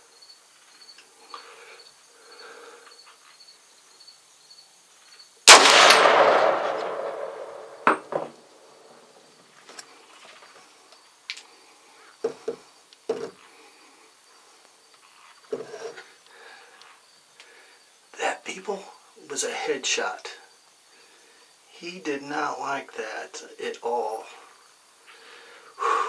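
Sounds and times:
insects chirring: 0.0s - 26.0s
gunshot: 5.5s - 8.3s.

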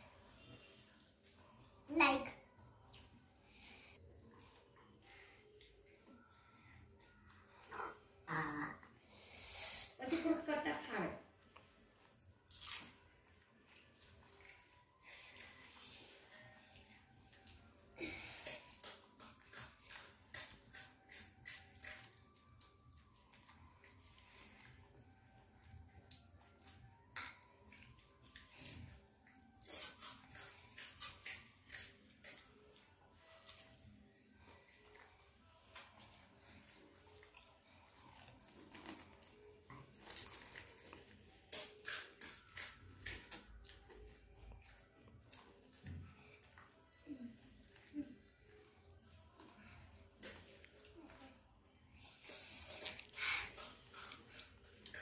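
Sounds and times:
children chewing and crunching: 0.0s - 55.0s
chewing crisp shells: 18.4s - 23.6s, 29.2s - 32.8s, 35.7s - 45.8s, 52.6s - 55.0s.

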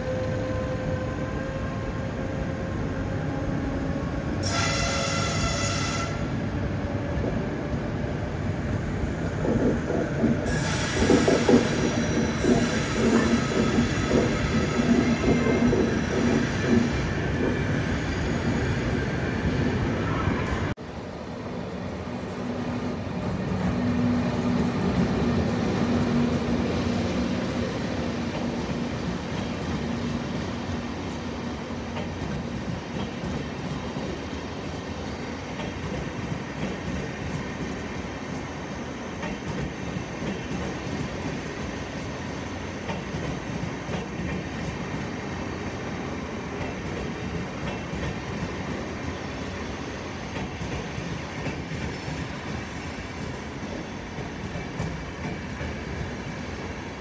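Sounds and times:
train coaches rumbling past: 0.0s - 57.0s
train wheels squealing: 4.4s - 6.4s, 10.4s - 20.7s.

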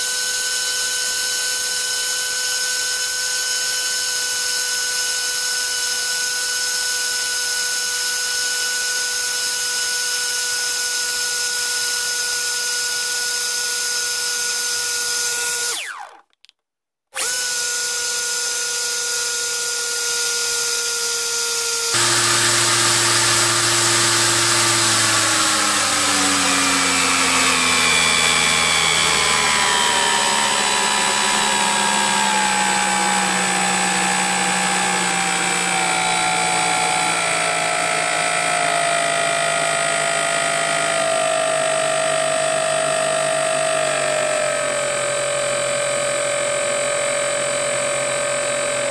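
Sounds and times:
electric motor propeller whine: 15.3s - 16.2s, 20.1s - 48.9s.

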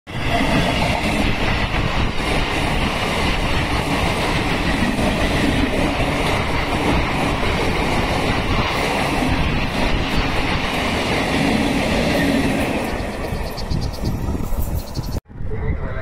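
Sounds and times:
train wheels rumbling on rails: 0.1s - 15.2s.

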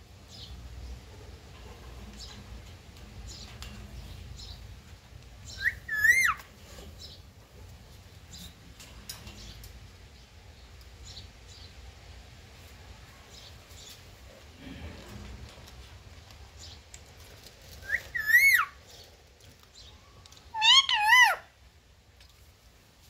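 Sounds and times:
parrot squawk: 5.6s - 6.4s, 17.9s - 18.8s, 20.5s - 21.5s.

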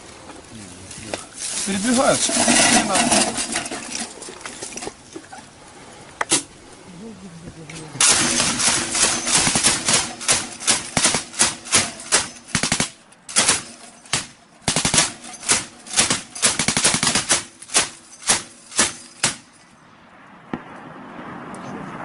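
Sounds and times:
machine gun firing: 8.0s - 19.4s.

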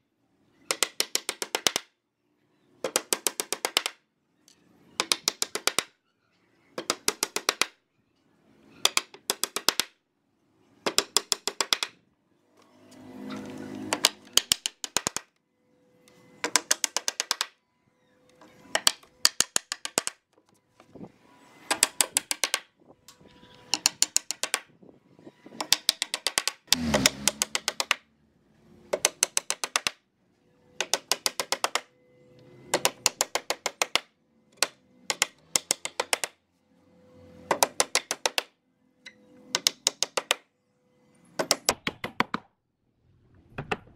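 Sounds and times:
hammer striking nails into wood: 0.7s - 1.8s, 2.8s - 4.0s, 5.0s - 5.9s, 6.8s - 7.7s, 8.8s - 9.9s, 10.8s - 12.0s, 13.9s - 15.3s, 16.4s - 17.5s, 18.7s - 20.2s, 21.7s - 22.7s, 23.7s - 24.7s, 25.6s - 28.0s, 28.9s - 30.0s, 30.8s - 31.9s, 32.7s - 36.4s, 37.5s - 38.5s, 39.5s - 40.4s, 41.4s - 42.5s.

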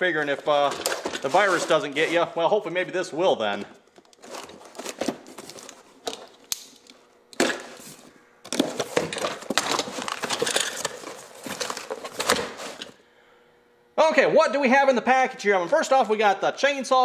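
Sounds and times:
crinkly rustling of packaging: 0.3s - 2.3s, 4.2s - 6.4s, 8.5s - 13.0s.

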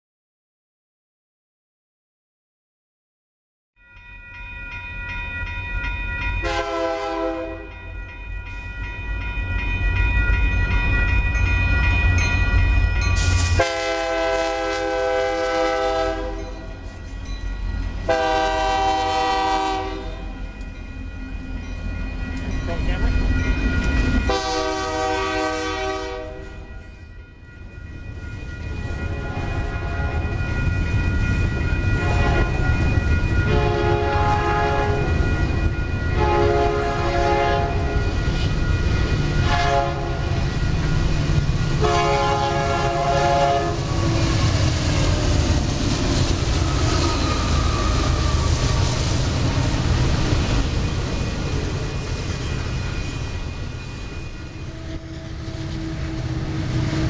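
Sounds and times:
passing freight train rumble: 4.0s - 57.0s
locomotive horn: 6.4s - 7.8s, 13.5s - 16.8s, 18.1s - 20.4s, 24.3s - 26.7s, 29.1s - 30.3s, 32.0s - 32.5s, 33.5s - 35.1s, 36.2s - 38.0s, 39.4s - 40.5s, 41.8s - 44.5s, 54.7s - 57.0s.

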